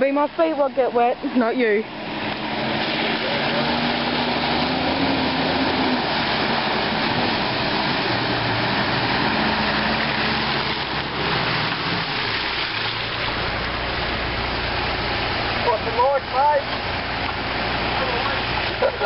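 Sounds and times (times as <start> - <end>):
vehicle engine running: 0.0 - 19.0
water splashing from tyres: 0.0 - 19.0.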